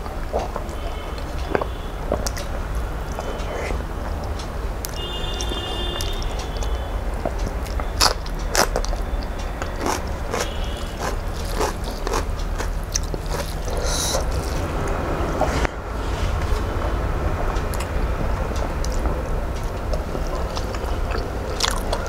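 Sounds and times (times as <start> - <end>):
wet chewing and lip smacks: 7.6 - 15.0, 18.8 - 22.0
fingers mixing rice on plate: 9.8 - 15.0.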